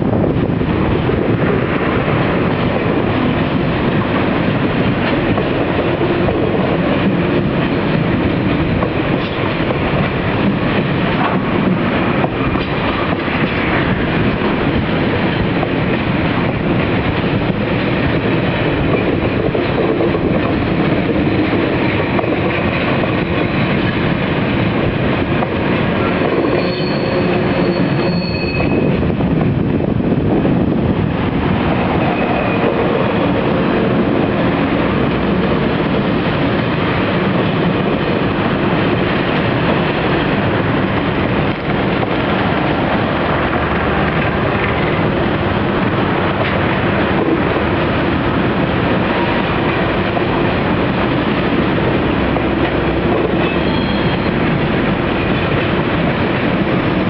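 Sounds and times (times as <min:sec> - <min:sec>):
train wheels rumbling on rails: 0:00.0 - 0:57.0
high wheel squeal: 0:26.4 - 0:29.0, 0:53.4 - 0:54.4.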